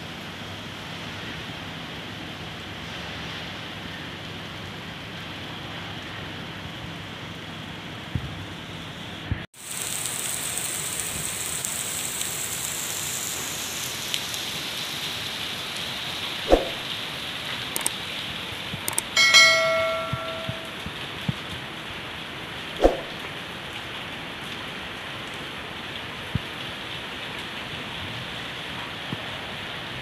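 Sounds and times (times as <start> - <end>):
heavy rain pouring: 9.6 - 30.0
short ringing tone: 19.2 - 20.8.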